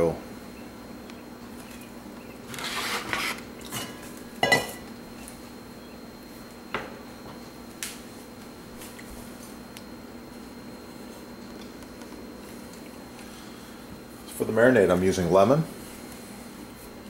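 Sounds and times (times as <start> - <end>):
metal bowl clanking: 3.6 - 4.8.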